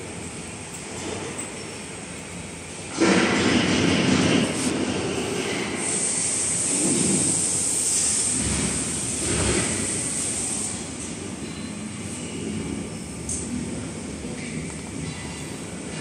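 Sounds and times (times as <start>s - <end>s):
steady machine noise: 0.0s - 16.0s
thin high-pitched whine: 11.4s - 13.5s.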